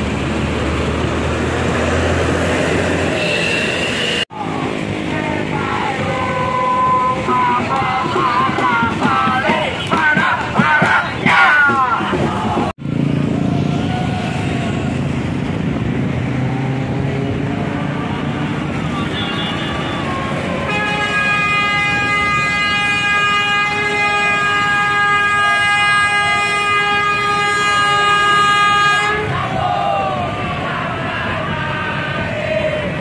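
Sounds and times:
road traffic and engines: 0:00.0 - 0:33.0
bus horn steady note: 0:03.2 - 0:04.2, 0:18.9 - 0:29.3.

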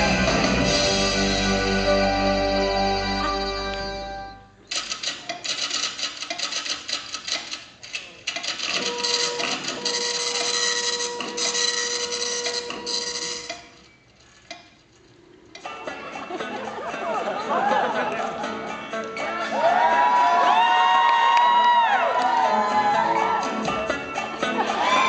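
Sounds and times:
crowd cheering: 0:19.3 - 0:25.0
audience applauding: 0:19.6 - 0:23.6.

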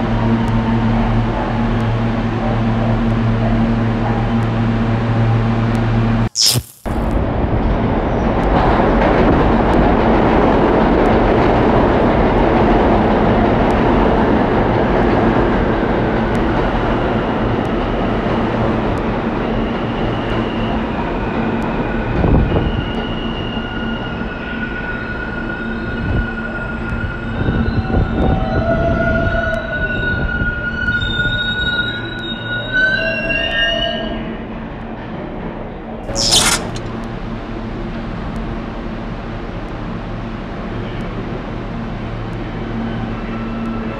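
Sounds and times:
subway train wheels rumbling on rail: 0:00.0 - 0:06.0, 0:07.2 - 0:36.0, 0:37.1 - 0:43.9
brake and wheel squeals: 0:29.2 - 0:34.3, 0:36.1 - 0:36.8.

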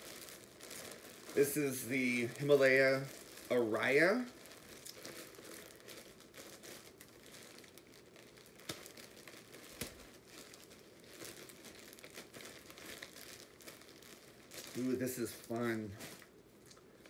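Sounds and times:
plastic bag crinkling: 0:00.0 - 0:17.0.

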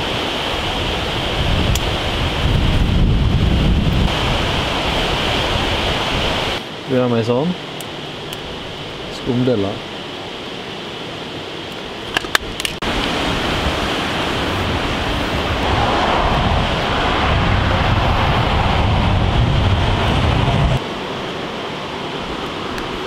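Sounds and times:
river water rushing: 0:00.0 - 0:23.0
low rumble: 0:15.2 - 0:20.8.

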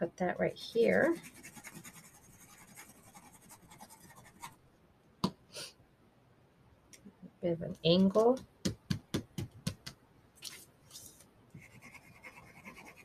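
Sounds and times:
paper rustle: 0:10.4 - 0:11.3.

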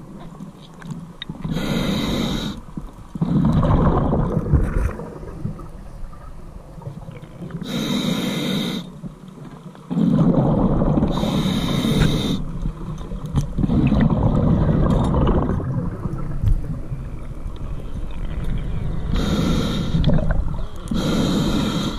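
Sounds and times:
exhaled air bubbles rumbling: 0:01.4 - 0:07.9, 0:09.9 - 0:21.9
regulator inhale hiss with whistle: 0:01.5 - 0:02.6, 0:07.6 - 0:09.0, 0:11.1 - 0:12.4, 0:19.1 - 0:20.1, 0:20.9 - 0:21.9.

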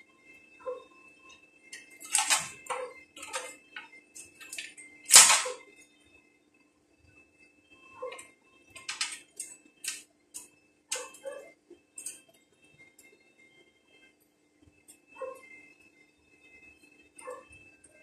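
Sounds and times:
faint steady hum: 0:00.0 - 0:18.0
steel pieces clinking on metal: 0:02.0 - 0:03.5, 0:04.4 - 0:05.6, 0:08.8 - 0:10.0.

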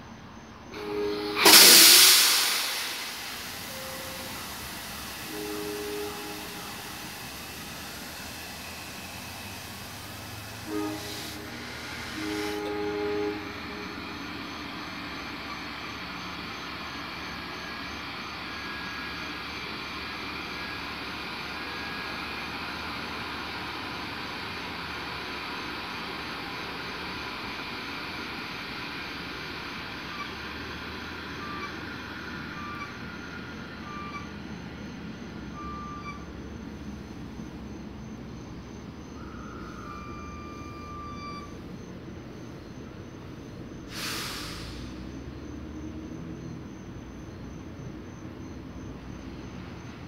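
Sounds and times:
electric locomotive hum and hiss: 0:00.0 - 0:50.0
train horn: 0:00.7 - 0:16.0, 0:39.0 - 0:41.5
faint short beeps: 0:35.5 - 0:36.3, 0:39.1 - 0:41.6.

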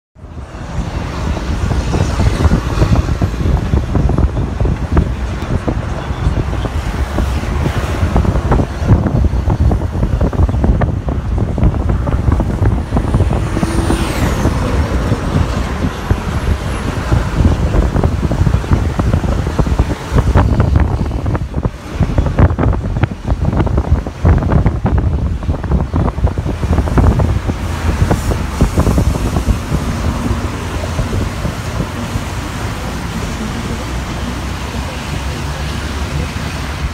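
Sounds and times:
highway traffic rumble: 0:00.2 - 0:36.9.

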